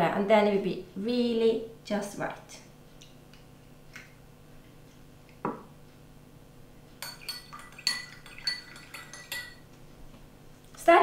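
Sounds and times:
spoon clinking in a glass: 0:07.0 - 0:09.6.

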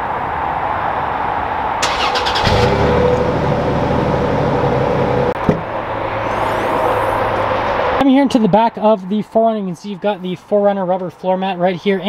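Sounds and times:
car engine idling: 0:01.8 - 0:07.9.

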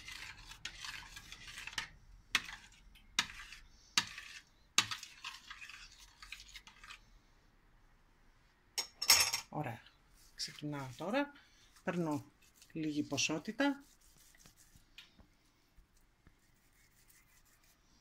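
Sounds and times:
spoon stirring thick sauce: 0:00.0 - 0:07.2.

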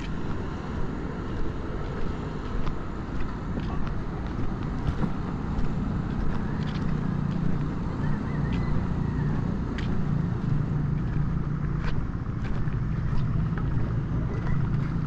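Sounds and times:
road traffic rumble: 0:00.0 - 0:15.0
footsteps on concrete: 0:01.3 - 0:15.0.

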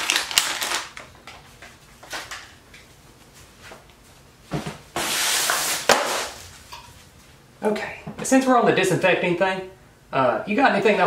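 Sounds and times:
plastic pack crinkling: 0:00.0 - 0:01.4.

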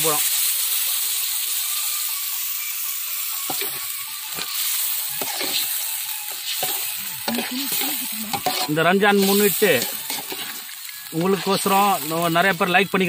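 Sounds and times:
chicken sizzling in pot: 0:00.0 - 0:13.0
metal ladle scraping pot: 0:03.4 - 0:12.1.

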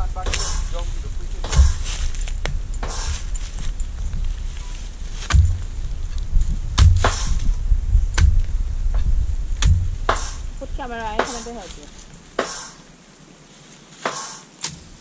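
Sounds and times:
digging blade thudding into soil: 0:00.2 - 0:03.7, 0:05.2 - 0:05.8, 0:06.7 - 0:07.6, 0:09.6 - 0:10.5, 0:11.1 - 0:12.8, 0:14.0 - 0:15.0.

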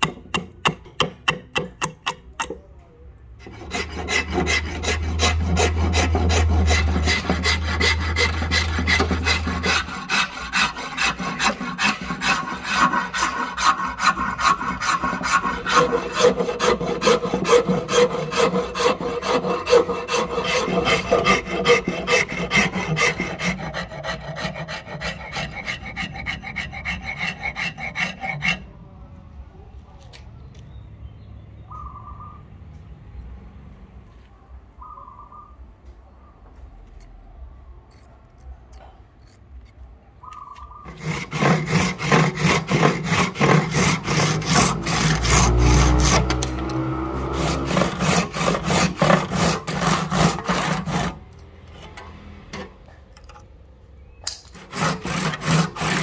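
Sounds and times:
steel file scraping wood: 0:03.4 - 0:28.7, 0:40.9 - 0:52.8, 0:54.5 - 0:56.0.

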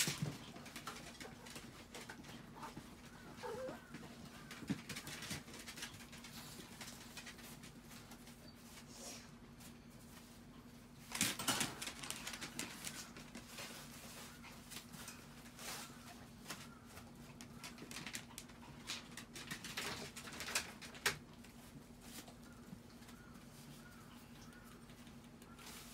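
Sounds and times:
dog claws scrabbling on plastic: 0:17.3 - 0:21.5.

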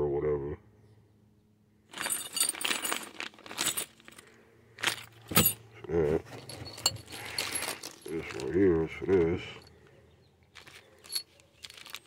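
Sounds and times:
screws clinking: 0:01.9 - 0:04.2, 0:06.4 - 0:08.6, 0:10.6 - 0:12.0
plastic bags crinkling: 0:02.0 - 0:05.3, 0:06.4 - 0:09.2, 0:10.5 - 0:12.0.

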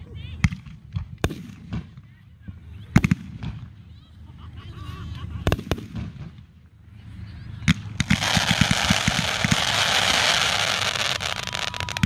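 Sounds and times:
firework crackling hiss: 0:07.7 - 0:12.0.

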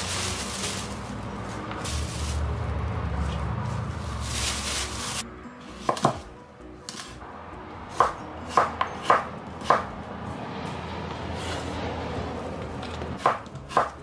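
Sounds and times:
plastic bag rustling: 0:00.0 - 0:05.2
knife chopping on cutting board: 0:07.9 - 0:09.9, 0:13.2 - 0:14.0.

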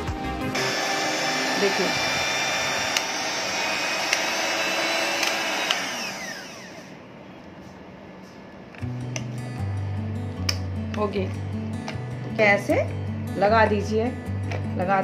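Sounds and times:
electric hand mixer whining: 0:00.0 - 0:07.0.

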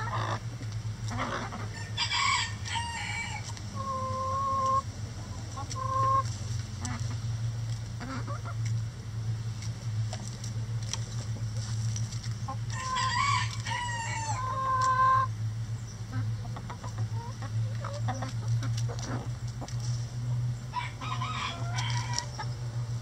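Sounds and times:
hens clucking: 0:00.0 - 0:08.8, 0:09.7 - 0:23.0
low hum: 0:00.0 - 0:23.0
rooster crowing: 0:01.7 - 0:03.4, 0:12.7 - 0:15.2, 0:20.7 - 0:22.4.

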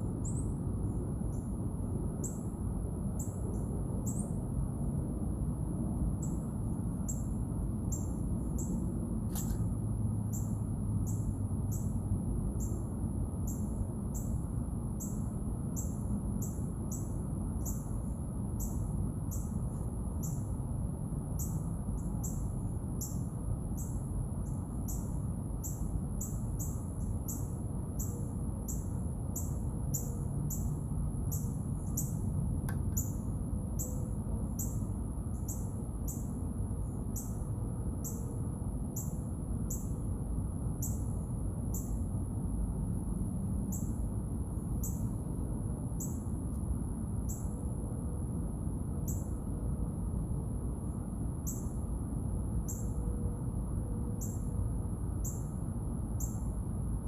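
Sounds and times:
very high whine: 0:00.0 - 0:20.6.

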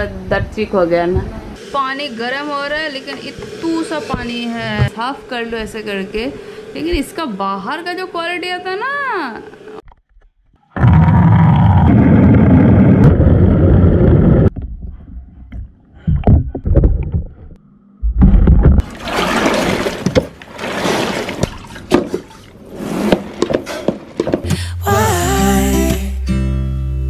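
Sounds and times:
water splashing: 0:18.7 - 0:22.7
water sloshing in a mop bucket: 0:18.8 - 0:24.4.

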